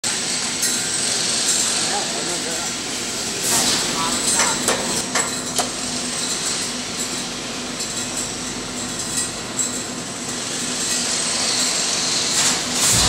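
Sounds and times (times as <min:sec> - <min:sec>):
steel slitting machine din: 0:11.6 - 0:13.0.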